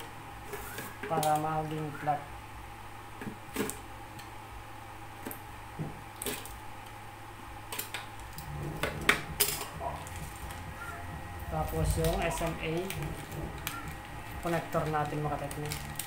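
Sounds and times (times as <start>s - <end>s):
low hum: 8.2s - 16.0s.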